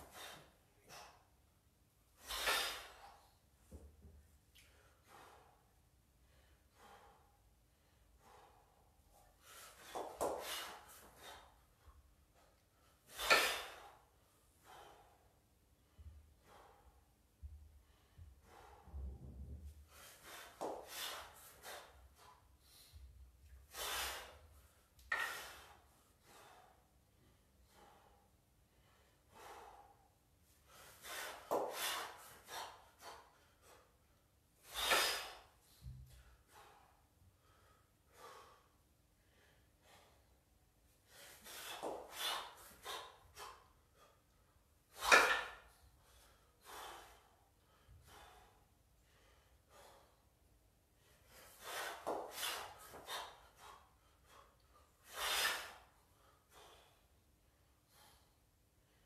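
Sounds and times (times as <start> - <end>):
man gasping breaths: 4.6 - 57.2.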